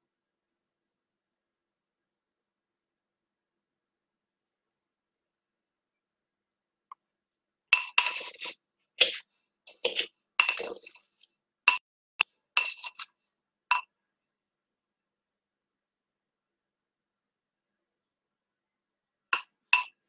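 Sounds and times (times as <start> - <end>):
sugar scooping clinks and scrapes: 7.8 - 11.3, 12.6 - 13.2.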